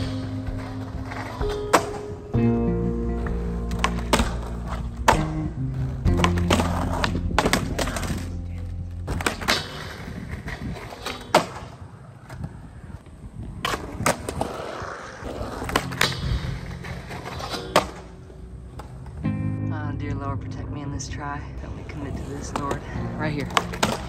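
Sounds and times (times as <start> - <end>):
skateboard slapping the ground: 0.0 - 2.2, 3.7 - 5.5, 6.1 - 19.2, 22.2 - 24.0
music: 0.0 - 10.1, 15.5 - 18.1, 19.0 - 24.0
skateboard wheels rolling on concrete: 0.0 - 24.0.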